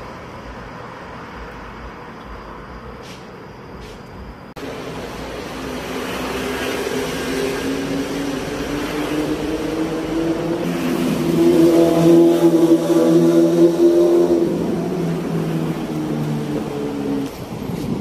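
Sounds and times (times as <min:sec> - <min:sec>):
vehicle engine approaching: 0:04.6 - 0:17.6.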